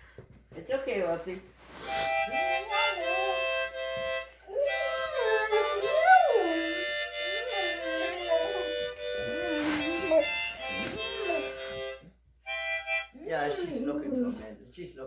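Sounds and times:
harmonica playing chords: 0:01.8 - 0:13.8
dog howling: 0:02.8 - 0:03.8, 0:04.5 - 0:11.8.

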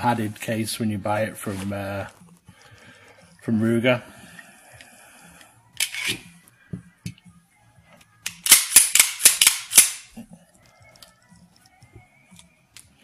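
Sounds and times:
sharp metallic clicks: 0:08.2 - 0:10.1.

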